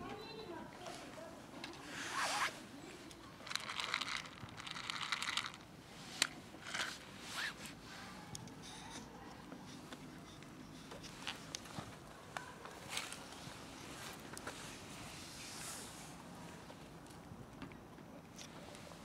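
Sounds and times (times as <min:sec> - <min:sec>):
cat kibble rattling onto dirt: 0:03.4 - 0:05.6.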